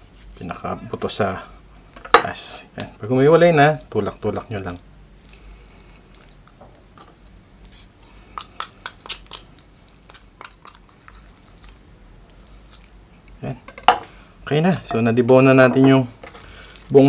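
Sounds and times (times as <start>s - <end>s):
wet squishing of raw meat: 3.5s - 13.4s, 16.1s - 17.0s.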